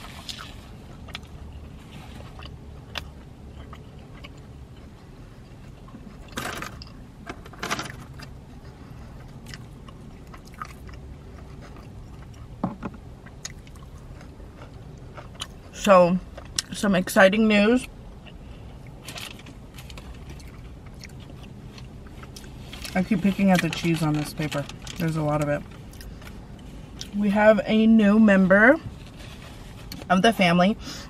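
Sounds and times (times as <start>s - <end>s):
low hum of car cabin: 0.0s - 31.0s
chewing and biting food: 0.1s - 7.1s, 8.0s - 16.8s, 18.2s - 23.8s.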